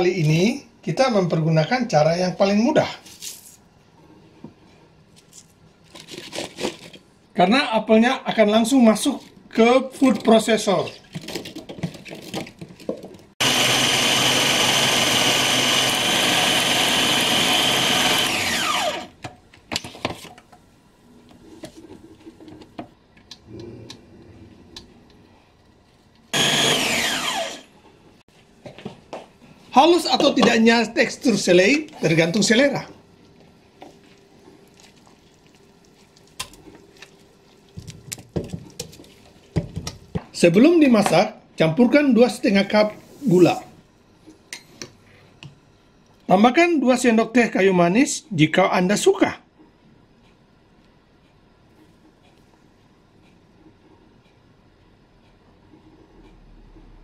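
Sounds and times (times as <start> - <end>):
food processor motor chopping: 13.4 - 19.2, 26.3 - 27.7.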